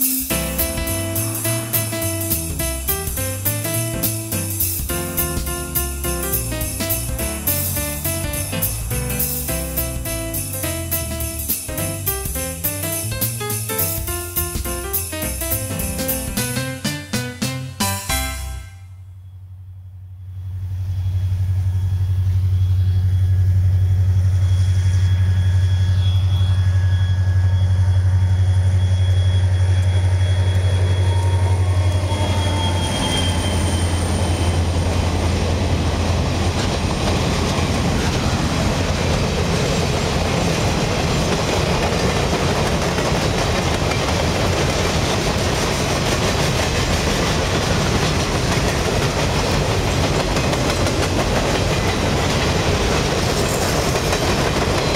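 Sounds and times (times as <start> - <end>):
train wheels running over rails: 0.0 - 17.3, 23.3 - 54.9
high whine: 0.0 - 36.9
diesel locomotive engine drone: 0.0 - 54.9.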